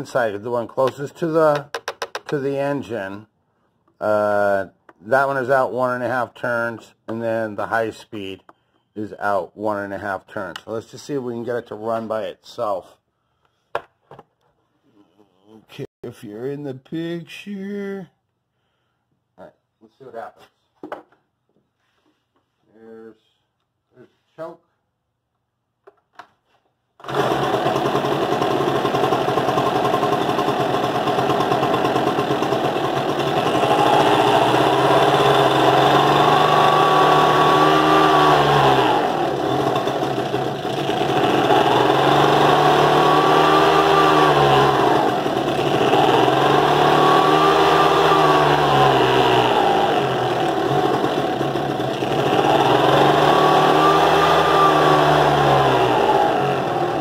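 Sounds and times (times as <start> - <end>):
leaf blower engine running: 27.0 - 57.0.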